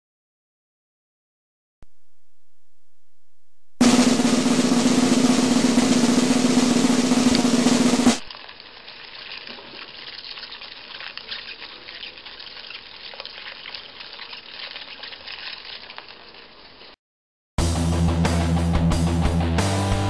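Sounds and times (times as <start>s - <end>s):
low room tone hiss: 1.8s - 4.7s
faint clicks and rustles: 8.3s - 16.9s.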